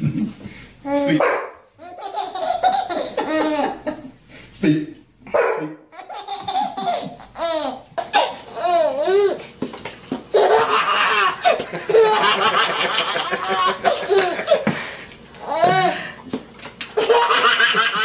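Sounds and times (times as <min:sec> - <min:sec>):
baby laughing: 0:01.8 - 0:04.0, 0:05.9 - 0:09.4, 0:10.3 - 0:14.7, 0:17.0 - 0:18.0.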